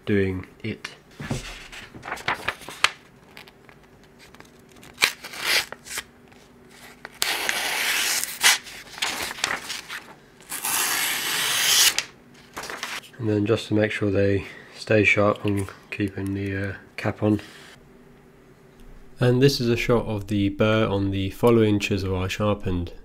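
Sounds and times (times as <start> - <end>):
paper rustling and tapping: 1.2 - 4.8, 9.0 - 10.0, 12.4 - 13.0
chisel slicing paper: 7.1 - 12.1.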